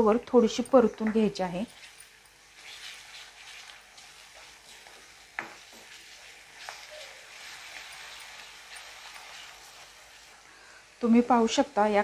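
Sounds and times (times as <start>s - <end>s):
onions frying faintly: 0.0s - 12.0s
wooden spatula scraping pan: 1.6s - 10.2s.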